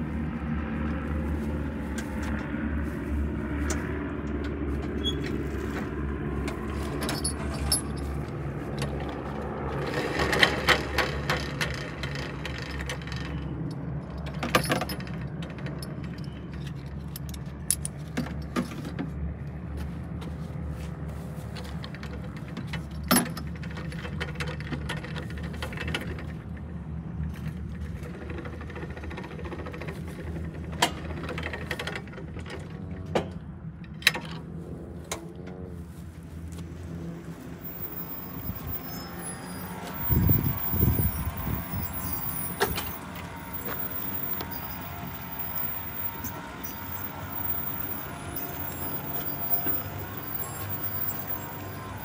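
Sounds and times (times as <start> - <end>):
vehicle engine running: 0.0 - 52.0
metallic clinks and rattles: 6.8 - 8.3.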